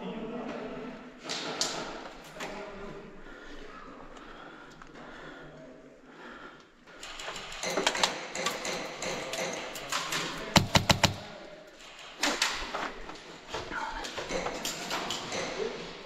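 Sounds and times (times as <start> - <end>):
airsoft rifle shots: 10.6 - 11.4.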